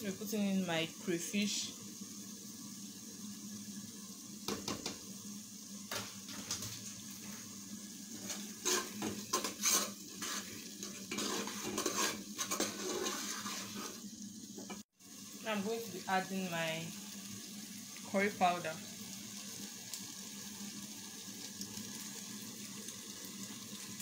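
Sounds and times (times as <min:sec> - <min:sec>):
food sizzling: 0:00.0 - 0:24.0
metal spoon scraping a pot: 0:08.2 - 0:14.0.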